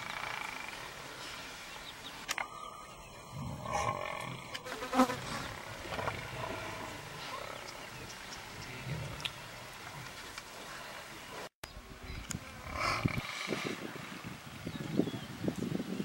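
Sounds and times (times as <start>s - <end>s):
large animal growling: 3.3s - 4.6s, 5.2s - 10.1s, 12.5s - 13.8s.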